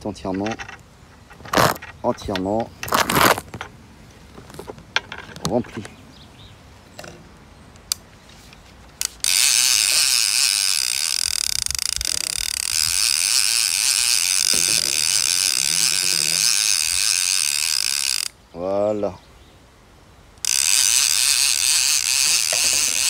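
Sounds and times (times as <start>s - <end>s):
fishing reel clicker buzzing: 9.0s - 18.4s, 20.4s - 23.0s.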